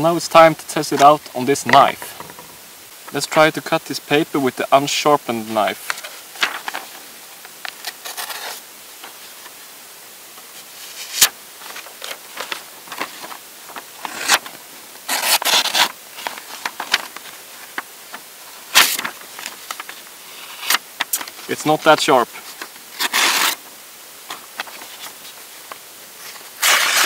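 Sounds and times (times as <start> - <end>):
knife tearing paper: 7.8 - 8.6, 14.0 - 14.4, 15.1 - 16.0, 18.7 - 19.1, 23.0 - 23.6, 26.6 - 27.0.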